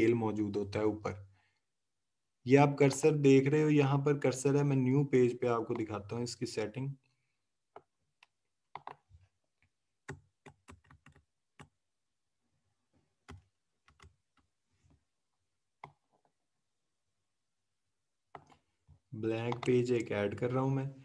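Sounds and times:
faint keyboard and mouse clicks: 5.6s - 6.0s, 7.7s - 11.8s, 12.9s - 15.0s, 15.8s - 16.4s, 18.3s - 20.2s.

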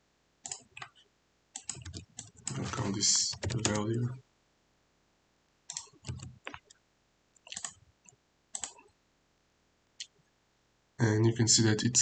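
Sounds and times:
mouse and keyboard clicks: 0.4s - 1.0s, 1.6s - 3.8s, 5.7s - 6.7s, 7.4s - 7.8s, 8.6s - 8.8s.

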